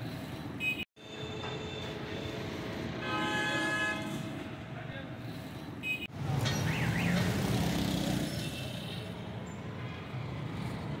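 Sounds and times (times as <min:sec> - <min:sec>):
car engines passing: 0:06.1 - 0:11.0
motorcycle engines passing: 0:06.2 - 0:11.0.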